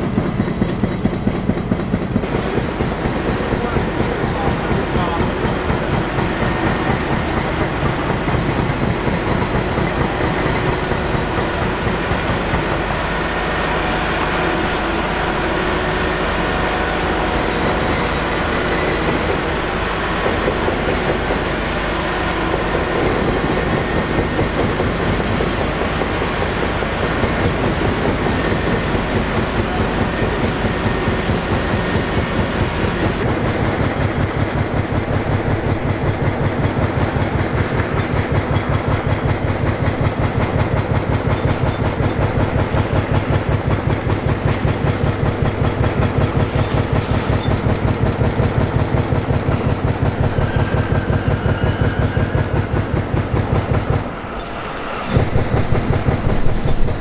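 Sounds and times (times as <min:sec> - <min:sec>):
heavy diesel engine running: 0:00.0 - 0:57.0.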